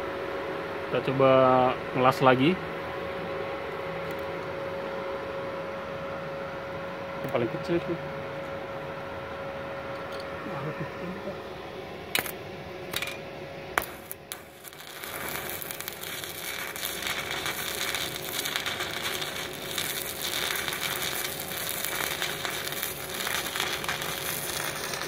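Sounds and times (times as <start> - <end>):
welding arc crackling: 13.8 - 25.0.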